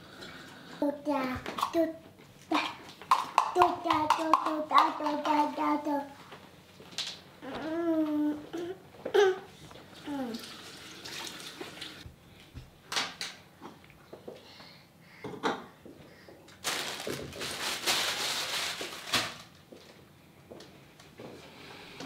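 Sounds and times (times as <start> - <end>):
small objects knocking on plastic tray: 3.0 - 5.5
rustling: 16.6 - 19.6.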